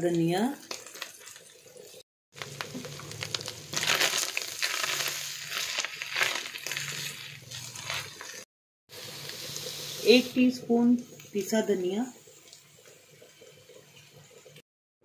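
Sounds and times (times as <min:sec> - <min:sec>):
spatula scraping a pan: 0:05.0 - 0:08.4.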